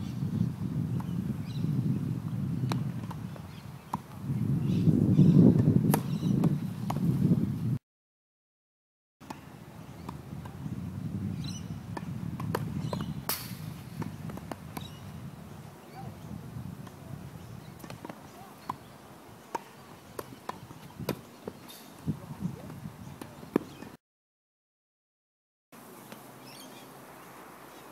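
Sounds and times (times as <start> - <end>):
racquets striking tennis ball: 11.9 - 15.0, 17.7 - 21.9, 23.2 - 23.9
tennis ball bouncing on court: 11.9 - 15.0, 17.7 - 18.9, 19.5 - 21.6, 23.2 - 23.9.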